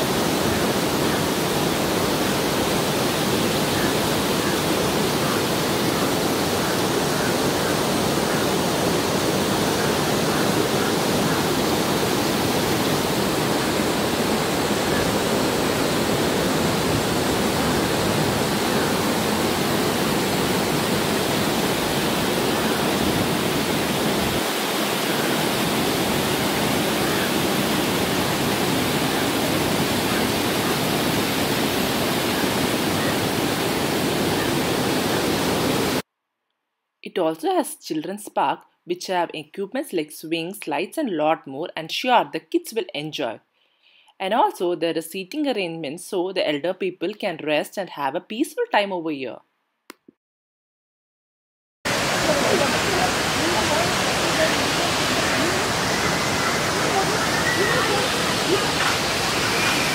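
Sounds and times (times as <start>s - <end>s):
waterfall rushing: 0.0s - 36.0s, 51.9s - 59.9s.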